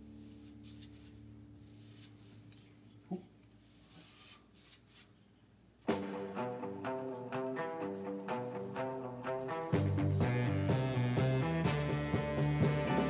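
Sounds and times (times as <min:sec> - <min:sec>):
paintbrush swishing on wall: 0:00.0 - 0:05.3
music: 0:05.8 - 0:13.0.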